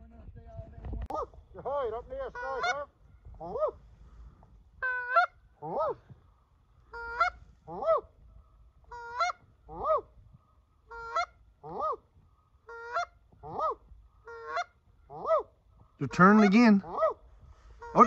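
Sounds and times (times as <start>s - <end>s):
goose call honks: 2.3s - 3.8s, 4.8s - 6.0s, 8.9s - 10.1s, 12.7s - 17.2s.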